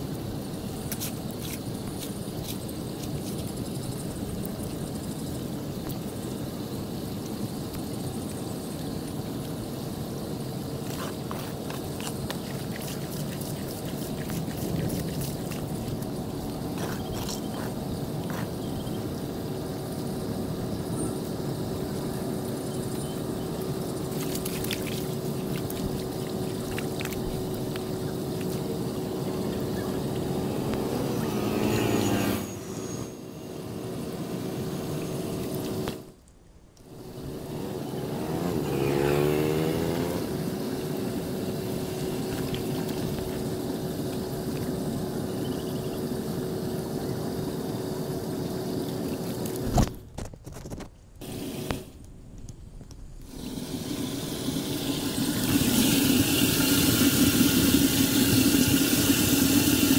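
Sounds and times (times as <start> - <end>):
engine hum: 0.0 - 50.2, 50.8 - 59.9
water rushing into storm drain: 8.7 - 18.4, 23.4 - 32.7, 53.2 - 59.9
vehicle passing: 28.4 - 34.5, 37.0 - 42.8.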